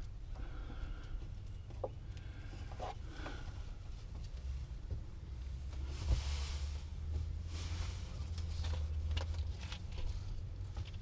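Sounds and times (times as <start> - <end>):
cable scraping and rustling: 5.6 - 11.0.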